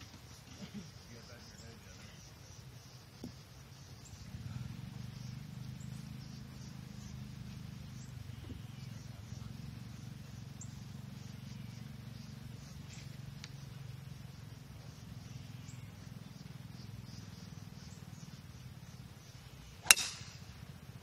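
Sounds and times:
low outdoor background: 0.0 - 21.0
golf club striking ball: 19.8 - 20.5.

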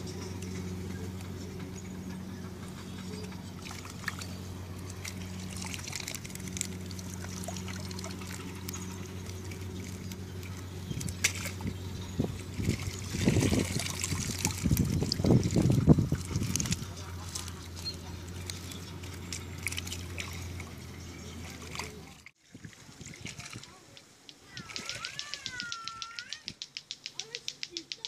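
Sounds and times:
steady low hum: 0.0 - 22.3
water pouring from a net: 3.6 - 20.8
faint ticks: 23.5 - 28.0.

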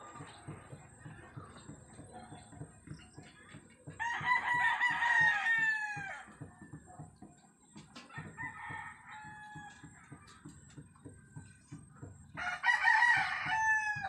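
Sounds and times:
rooster crowing: 4.0 - 6.3, 8.2 - 9.8, 12.4 - 14.0.

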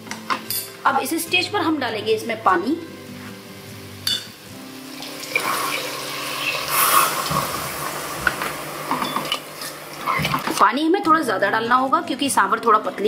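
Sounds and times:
water pouring into a pot: 4.8 - 8.1.

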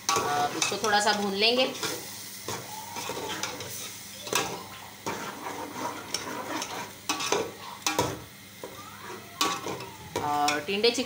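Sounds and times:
utensil stirring and scraping: 0.0 - 8.2
chicken sizzling in a pot: 0.0 - 11.0.

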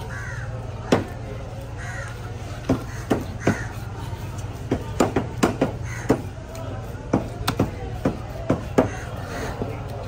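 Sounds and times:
crows cawing: 0.0 - 4.0, 5.6 - 6.3, 8.8 - 9.9
knife chopping on wooden block: 2.6 - 3.7, 4.6 - 6.3, 7.0 - 9.1.

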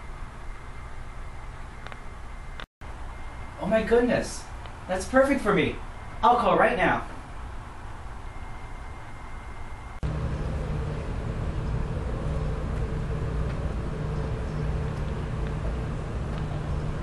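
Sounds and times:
low hum and rumble: 7.6 - 17.0
thin steady high tone: 8.0 - 12.6.

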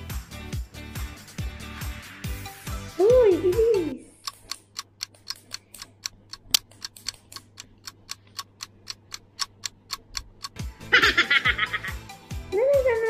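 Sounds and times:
clock ticking: 4.2 - 11.9.

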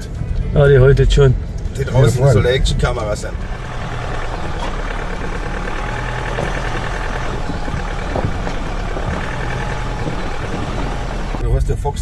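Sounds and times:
truck engine running low: 2.6 - 11.4.

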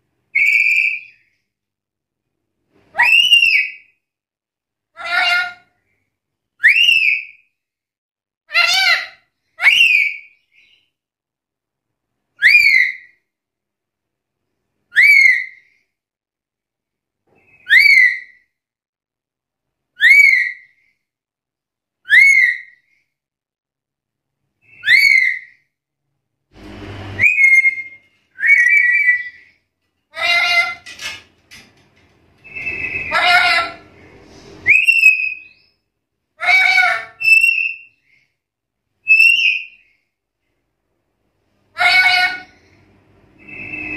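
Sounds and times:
parrot whistled calls: 0.3 - 1.2, 6.6 - 7.4, 9.6 - 10.8, 12.4 - 13.1, 14.9 - 15.6, 17.5 - 18.4, 20.0 - 20.7, 22.1 - 22.8, 24.7 - 25.5, 27.2 - 29.5, 32.4 - 33.9, 34.6 - 35.8, 36.4 - 38.0, 39.0 - 39.8, 43.3 - 43.9
parrot wavering call: 32.4 - 33.9, 41.8 - 42.6.

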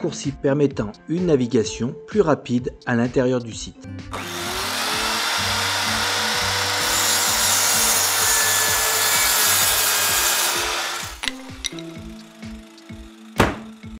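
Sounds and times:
background music with beat: 0.0 - 4.2, 11.1 - 13.9
saw cutting through wood: 4.1 - 11.2
sharp knocks: 13.4 - 13.8.

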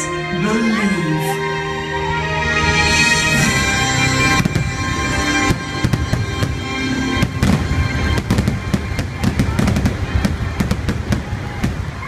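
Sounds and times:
loud show music: 0.0 - 12.0
fireworks bangs: 4.0 - 12.0.

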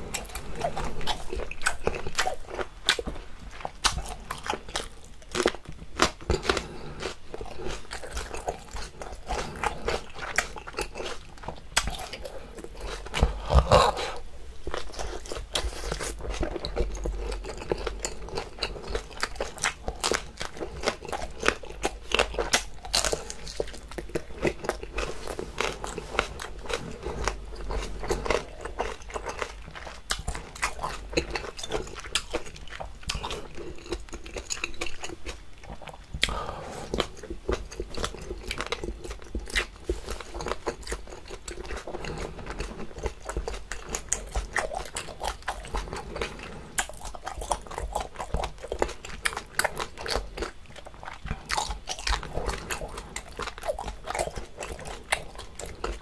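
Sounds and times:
person chewing octopus: 0.0 - 56.0.

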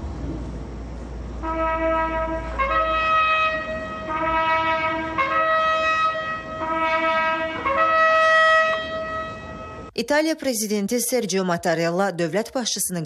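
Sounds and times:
brass band playing slow chords: 1.4 - 9.9.

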